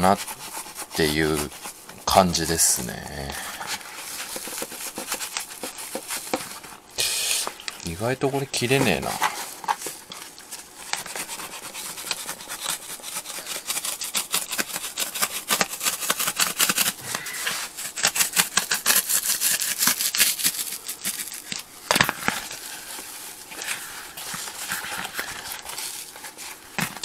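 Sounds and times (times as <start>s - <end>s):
knife sawing through plastic panel: 0.0s - 1.8s, 4.0s - 6.5s, 10.8s - 21.1s.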